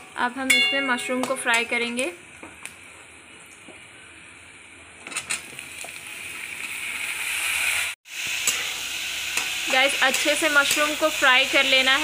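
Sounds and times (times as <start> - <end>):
oil sizzling in a wok: 4.6 - 12.0.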